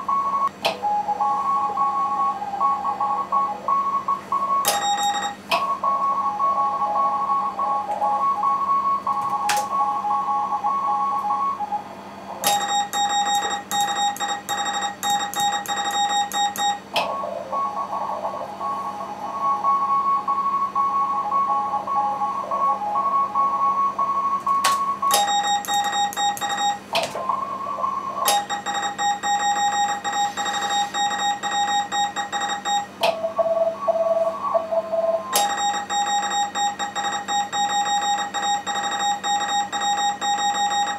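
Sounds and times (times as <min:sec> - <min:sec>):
morse code beeps: 0:00.0 - 0:18.0, 0:18.6 - 0:40.9
single keyed tone: 0:04.6 - 0:05.7, 0:12.4 - 0:17.0, 0:24.3 - 0:26.9, 0:35.3 - 0:40.9.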